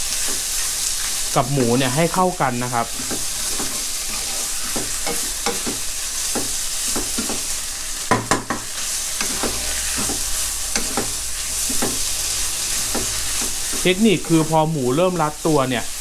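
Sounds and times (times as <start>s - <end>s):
meat sizzling in a wok: 0.0s - 16.0s
wooden spatula knocking on pan: 4.7s - 7.4s, 8.1s - 10.2s, 10.8s - 12.1s.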